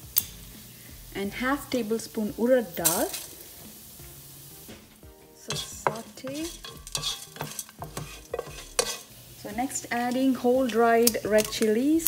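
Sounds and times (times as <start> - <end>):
seeds sizzling in oil: 0.0 - 12.0
spatula scraping a pan: 5.4 - 11.9.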